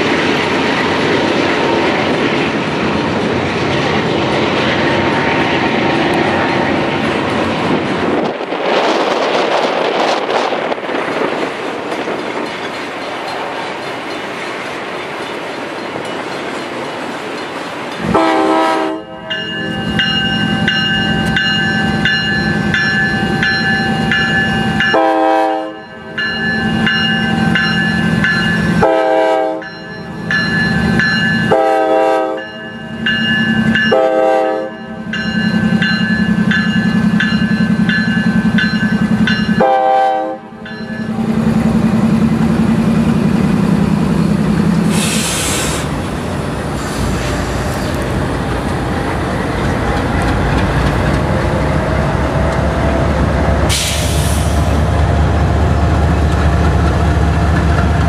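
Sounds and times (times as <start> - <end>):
passing train rumble: 0.0 - 58.0
crossing bell ringing: 12.4 - 14.5, 15.2 - 42.0
train horn blasts: 18.0 - 19.4, 24.8 - 26.1, 28.8 - 29.7, 31.4 - 32.6, 33.9 - 35.0, 39.5 - 40.7.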